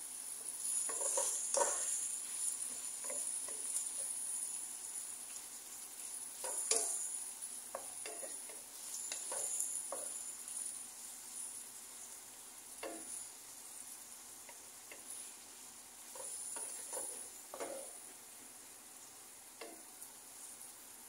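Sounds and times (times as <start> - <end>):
meat sizzling in a pan: 0.0 - 21.0
wooden spatula scraping pan: 0.4 - 4.5, 16.1 - 18.0.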